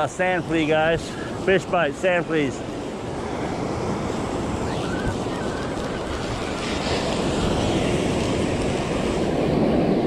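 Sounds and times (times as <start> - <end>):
ocean surf washing ashore: 0.0 - 10.0
wind buffeting microphone: 2.4 - 10.0.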